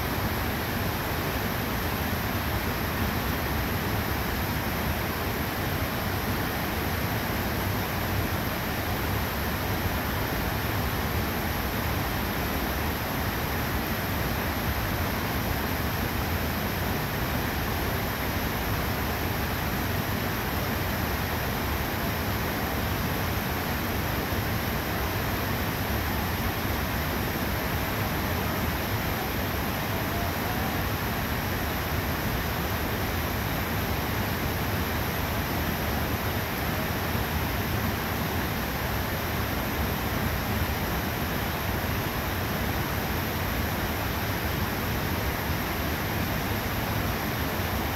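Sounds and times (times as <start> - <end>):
creek rushing over rapids: 0.0 - 47.9.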